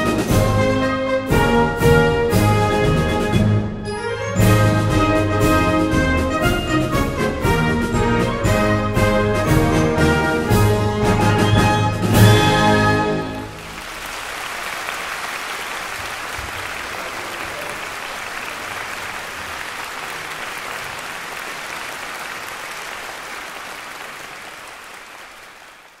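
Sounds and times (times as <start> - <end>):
audience applauding: 12.3 - 26.0.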